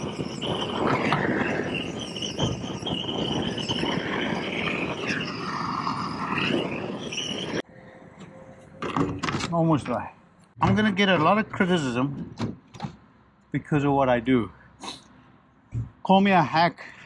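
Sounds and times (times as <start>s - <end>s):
roofing torch hissing: 0.0s - 7.6s.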